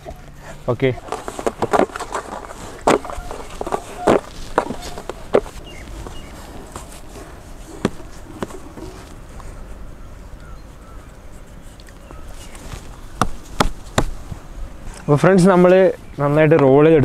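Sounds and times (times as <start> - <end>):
outdoor background hiss: 0.0 - 17.0
short knocks: 1.0 - 9.2.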